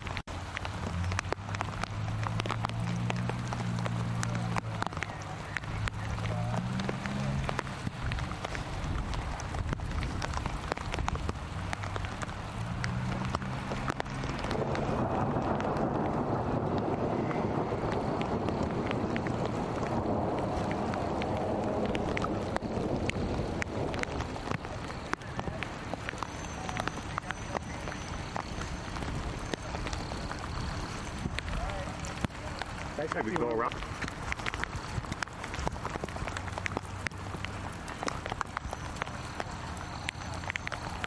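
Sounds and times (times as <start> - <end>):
wind buffeting microphone: 0.0 - 41.0.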